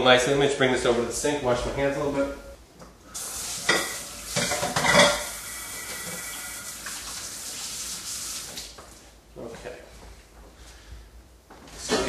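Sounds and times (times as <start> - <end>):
hands washing under water: 3.2 - 9.0.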